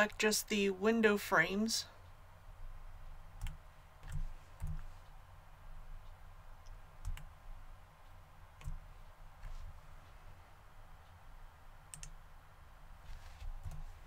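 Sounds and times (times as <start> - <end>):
steady low hum: 0.0 - 14.0
computer mouse clicks: 3.4 - 5.2, 6.0 - 7.4, 8.6 - 9.8, 11.9 - 12.2.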